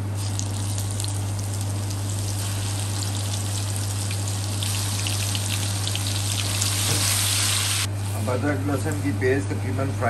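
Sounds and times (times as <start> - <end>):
onion sizzling in hot oil: 0.0 - 7.9.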